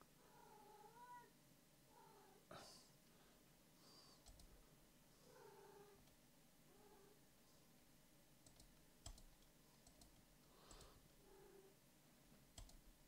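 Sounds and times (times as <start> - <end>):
computer mouse clicks: 4.2 - 4.5, 8.4 - 11.0, 12.6 - 12.8.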